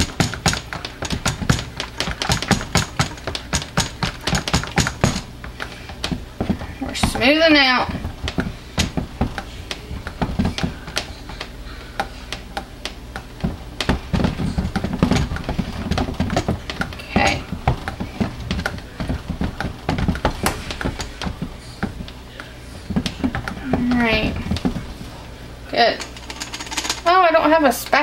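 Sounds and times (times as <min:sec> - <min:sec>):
blender head knocking plastic tub: 0:00.0 - 0:11.2.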